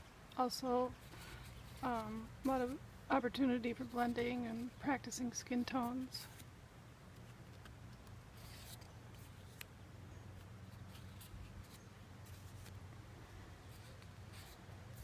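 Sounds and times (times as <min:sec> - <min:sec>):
steady low hum: 0:00.0 - 0:15.0
cardstock prints rustling: 0:01.0 - 0:06.5.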